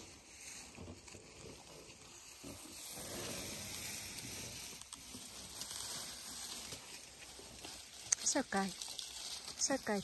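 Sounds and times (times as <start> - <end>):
elephant trunk sniffing and blowing: 0.0 - 8.0.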